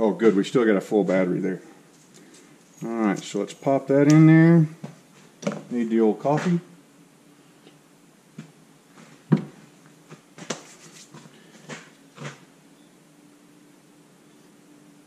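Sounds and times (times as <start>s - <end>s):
faint steady hum: 0.0s - 15.0s
objects knocking on wooden bench: 9.3s - 9.6s.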